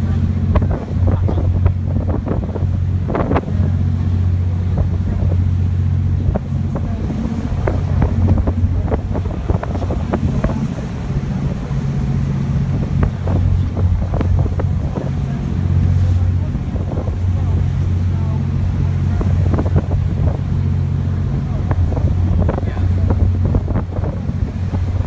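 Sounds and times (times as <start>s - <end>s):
ferry engine droning: 0.0s - 25.0s
water rushing along hull: 0.0s - 25.0s
wind buffeting microphone: 0.0s - 25.0s.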